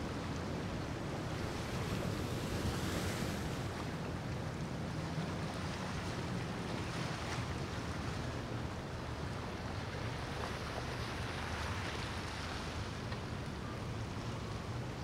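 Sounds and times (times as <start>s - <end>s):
water rushing from bow wake: 0.0s - 15.0s
power boat engines rumbling: 4.0s - 15.0s.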